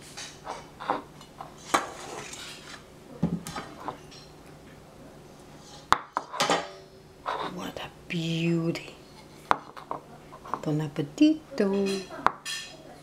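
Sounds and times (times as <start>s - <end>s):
dishes and cutlery clinking: 0.0s - 4.4s, 5.9s - 7.6s, 11.7s - 13.0s.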